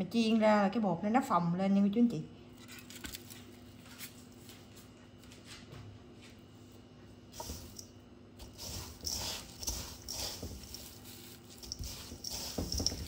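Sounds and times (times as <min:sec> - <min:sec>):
breadcrumbs rustling and crunching: 0:07.4 - 0:13.0.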